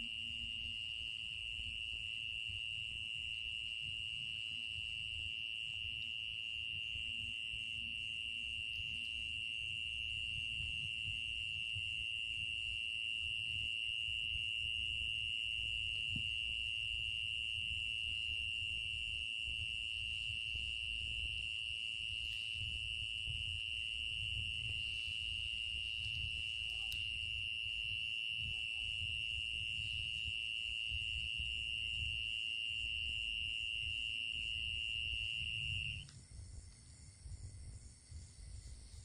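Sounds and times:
night insects trilling: 0.0s - 39.0s
low rumble on microphone: 22.0s - 39.0s.

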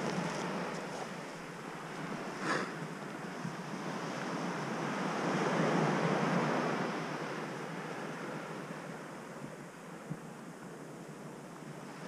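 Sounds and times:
waves breaking on a gravel beach: 0.0s - 9.0s.

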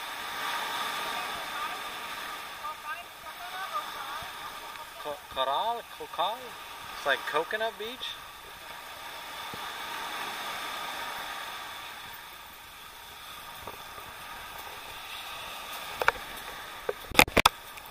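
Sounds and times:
small waves breaking on beach: 0.0s - 17.9s.

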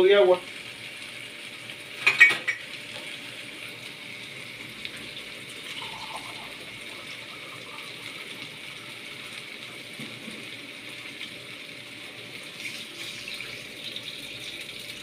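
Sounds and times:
tap water filling a cup: 4.8s - 8.7s.

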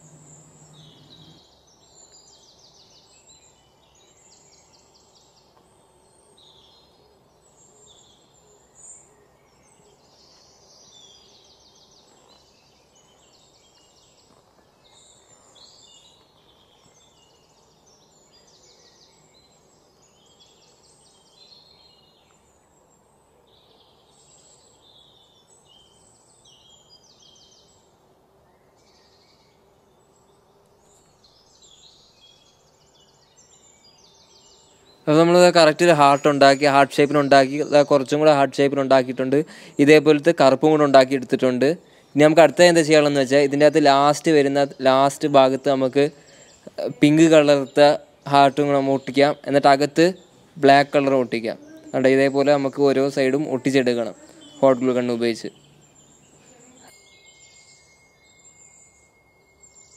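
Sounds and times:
low steady hum: 0.0s - 1.5s
faint bird trilling chirps: 0.0s - 59.9s.

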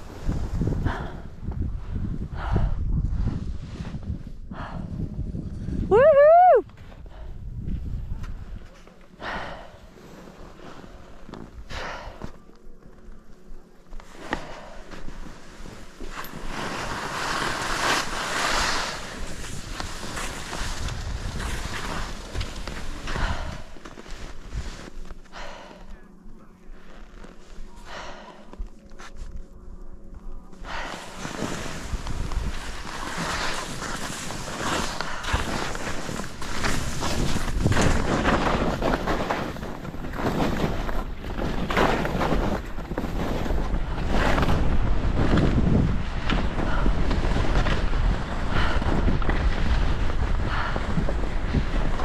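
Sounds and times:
wind buffeting microphone: 0.0s - 8.6s, 19.0s - 23.8s, 31.6s - 52.0s
skis scraping over snow: 14.0s - 25.8s, 30.7s - 52.0s.

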